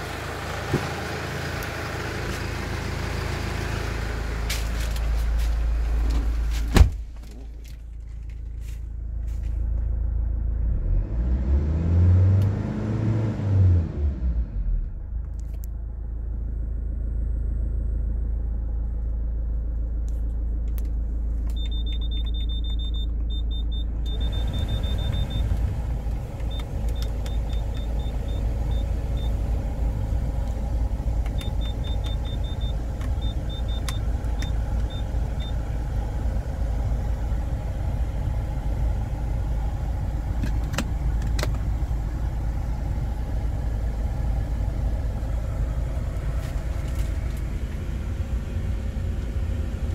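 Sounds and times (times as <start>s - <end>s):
car engine idling: 0.0s - 10.7s, 14.4s - 49.9s
rising and falling hum: 23.7s - 49.9s.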